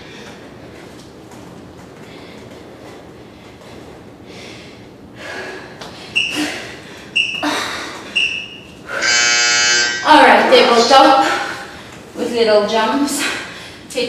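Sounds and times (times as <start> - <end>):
hard breathing: 2.0 - 9.1, 11.0 - 12.1
short high beeps: 8.2 - 10.1
long buzzer: 8.9 - 10.2.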